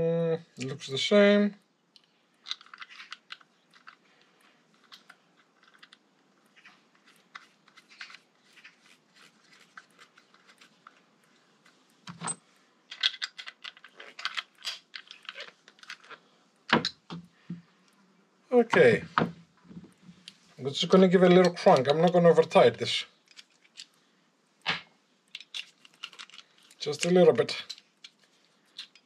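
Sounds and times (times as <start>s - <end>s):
small parts and tools clicking: 1.9s - 18.0s, 21.2s - 22.6s, 23.2s - 24.0s, 25.3s - 29.0s.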